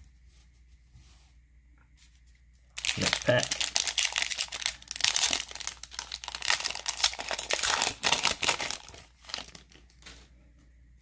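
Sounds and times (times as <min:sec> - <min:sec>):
plastic wrapper crinkling: 0:02.7 - 0:10.2.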